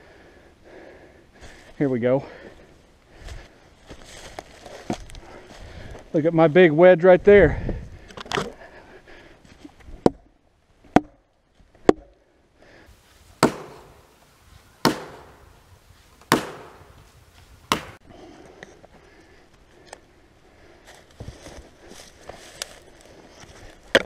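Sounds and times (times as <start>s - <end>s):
hammer blows on felling wedge: 12.9s - 18.0s.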